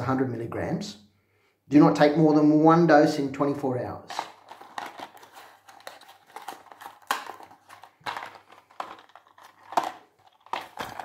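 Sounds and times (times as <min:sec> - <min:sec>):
medicine packaging crinkling: 0:04.1 - 0:11.0.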